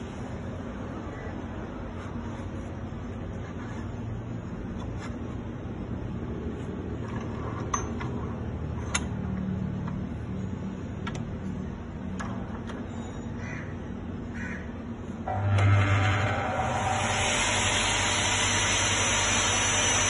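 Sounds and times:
steady low hum: 0:00.0 - 0:20.0
metallic clicks and taps: 0:08.8 - 0:10.0.

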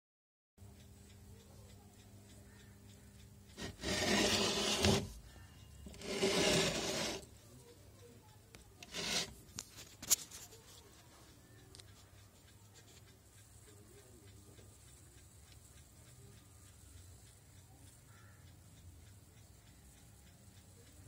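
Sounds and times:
metal box scraping on carpet: 0:03.6 - 0:05.2, 0:05.9 - 0:07.3, 0:08.8 - 0:09.4.

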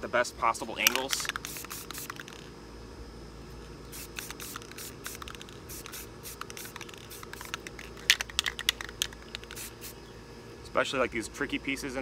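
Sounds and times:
spray can hissing: 0:00.8 - 0:02.5, 0:03.9 - 0:10.0
spray can rattling when shaken: 0:00.8 - 0:02.5, 0:03.9 - 0:09.9.

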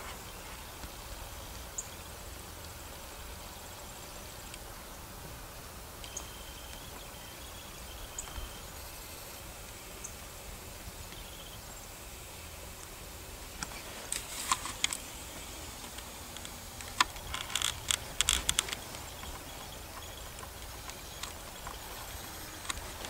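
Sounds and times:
microphone hiss: 0:00.0 - 0:23.0
camera handling clicks and rustles: 0:13.6 - 0:15.0, 0:15.9 - 0:19.4.

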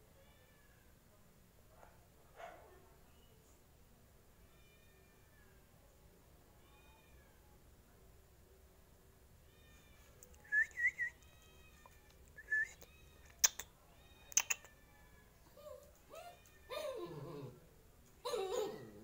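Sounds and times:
small dog whining: 0:15.4 - 0:17.6, 0:18.2 - 0:19.0
dog yelping: 0:15.6 - 0:17.6, 0:18.2 - 0:19.0.

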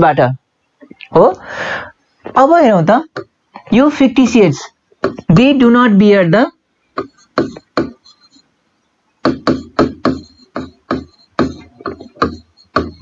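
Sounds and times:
marker writing on whiteboard: 0:05.0 - 0:05.3, 0:07.0 - 0:08.4, 0:09.2 - 0:13.0.

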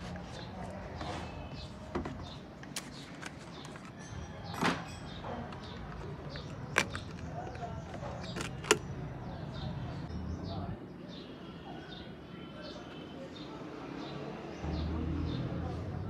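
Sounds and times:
plastic cap clicks and scrapes: 0:05.5 - 0:08.9.

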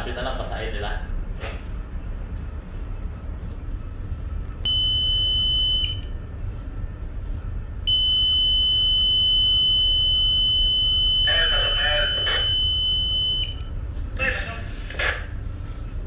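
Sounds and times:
low steady hum: 0:00.0 - 0:16.0
high-pitched alarm buzzer: 0:07.9 - 0:13.5.

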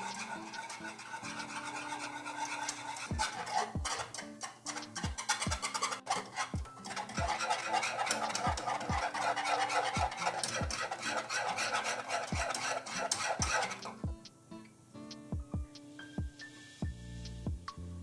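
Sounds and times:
utensil scraping a pot: 0:00.0 - 0:14.1
music with kick-drum beat: 0:03.1 - 0:03.9, 0:13.4 - 0:14.3, 0:15.1 - 0:17.9.

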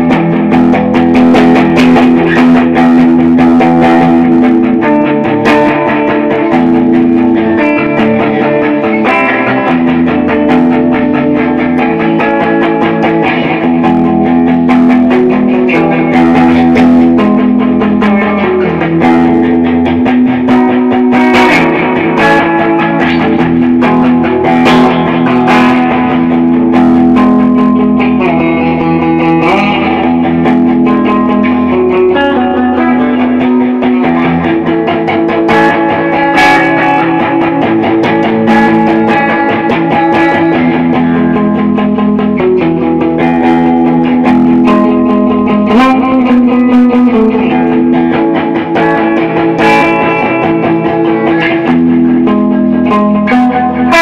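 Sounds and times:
electric guitar playing blues: 0:00.0 - 0:54.0.

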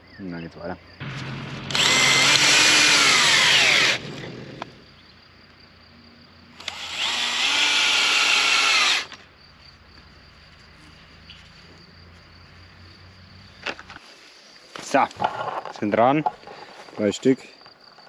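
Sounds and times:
cordless drill driving screws into wood: 0:01.7 - 0:04.1, 0:06.6 - 0:09.2.

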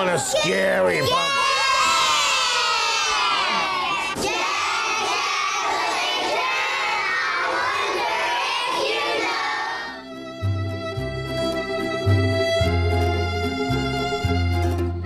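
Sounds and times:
children shouting and cheering: 0:00.0 - 0:10.0
music with held tones and beat: 0:10.0 - 0:15.0.

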